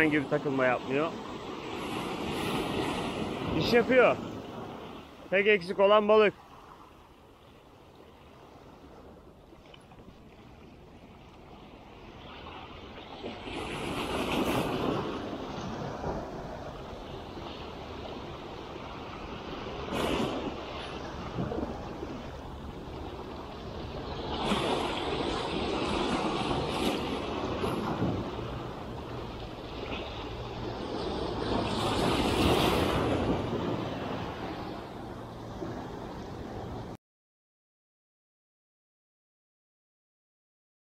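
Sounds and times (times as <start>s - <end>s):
sea waves washing among boulders: 0.0s - 37.0s
wind buffeting microphone: 8.2s - 37.0s.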